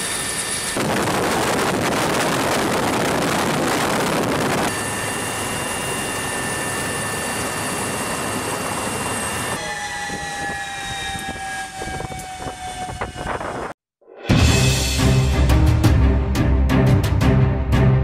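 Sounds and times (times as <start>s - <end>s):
helicopter wind and rotor noise: 0.0s - 13.8s
high turbine whine: 0.0s - 13.8s.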